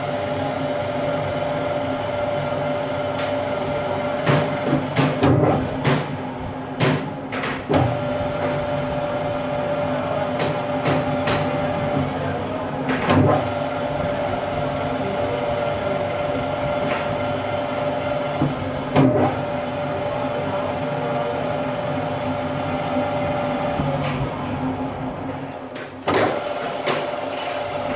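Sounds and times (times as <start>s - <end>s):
metal lathe humming: 0.0s - 5.2s, 7.9s - 25.8s.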